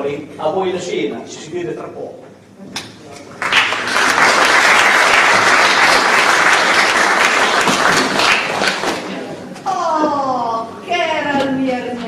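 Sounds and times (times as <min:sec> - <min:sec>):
audience applauding: 0:03.4 - 0:09.2.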